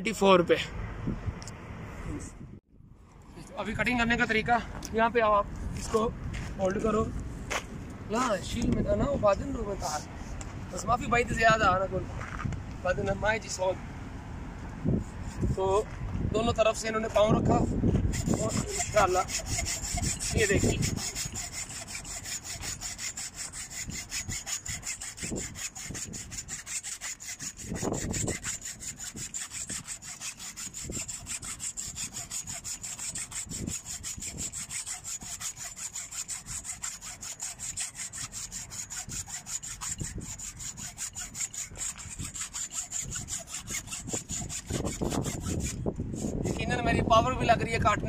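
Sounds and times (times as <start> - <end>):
hacksaw cutting cable: 15.0 - 15.6, 18.0 - 46.9.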